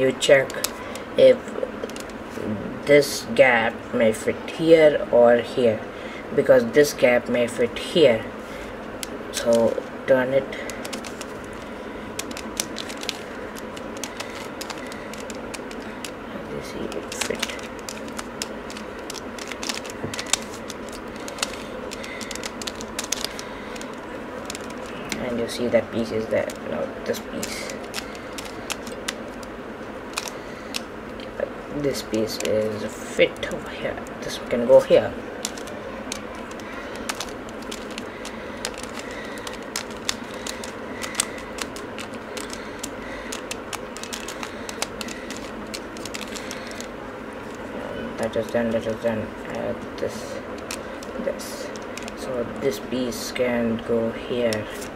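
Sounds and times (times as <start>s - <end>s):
plastic puzzle cube clicking: 0.4s - 0.8s, 1.8s - 2.2s, 10.7s - 25.2s, 26.4s - 29.5s, 30.1s - 30.9s, 35.4s - 46.9s, 50.6s - 52.2s.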